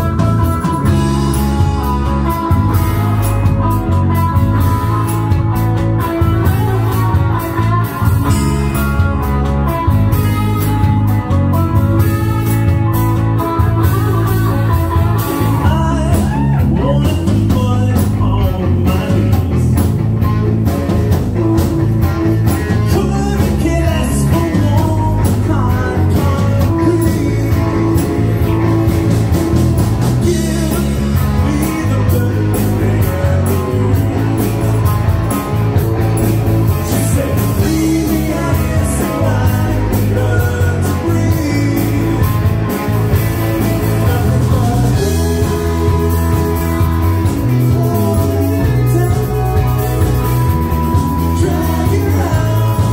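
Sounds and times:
drums: 0:00.0 - 0:52.9
electric guitars: 0:00.0 - 0:52.9
person singing: 0:13.9 - 0:20.0, 0:22.7 - 0:28.9, 0:30.2 - 0:35.1, 0:36.6 - 0:52.9.

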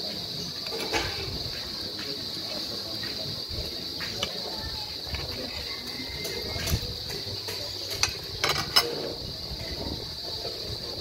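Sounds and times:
high-pitched hiss: 0:00.0 - 0:11.0
clinks off a plate: 0:07.5 - 0:09.0.

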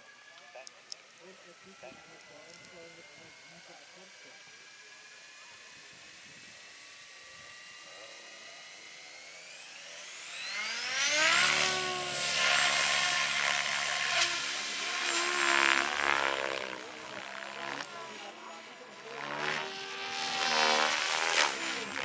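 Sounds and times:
electric motor whine: 0:00.0 - 0:22.0
rotor blade noise: 0:06.7 - 0:22.0.

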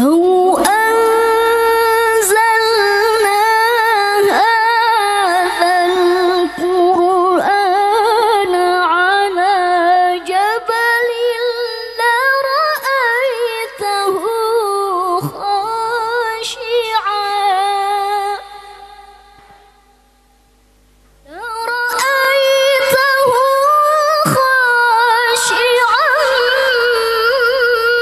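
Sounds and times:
woman chanting into a microphone: 0:00.0 - 0:19.8, 0:21.2 - 0:28.0.

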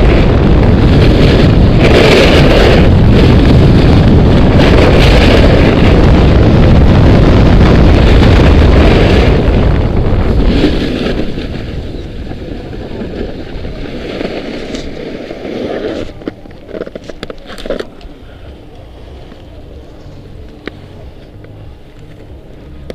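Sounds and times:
wind rushing over microphone: 0:00.0 - 0:22.9.

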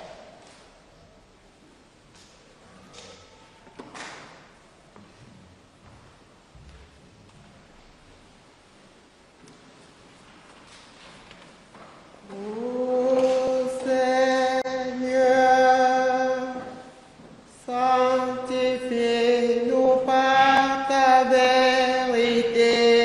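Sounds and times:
slow sung chant: 0:12.2 - 0:23.0.

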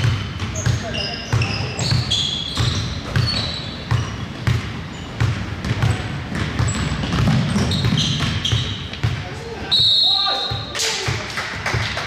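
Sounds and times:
basketball bouncing on gym floor: 0:00.0 - 0:09.4
sneakers squeaking on court: 0:00.0 - 0:10.8.

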